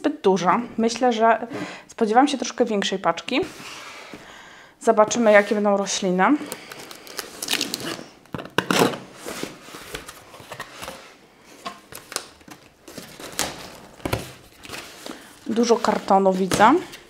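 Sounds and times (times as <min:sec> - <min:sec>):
cardboard and tape rustling: 0:06.4 - 0:17.0.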